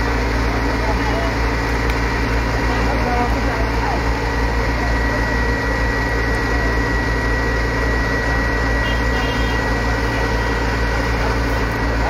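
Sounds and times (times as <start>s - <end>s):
crane engine running: 0.0s - 12.0s.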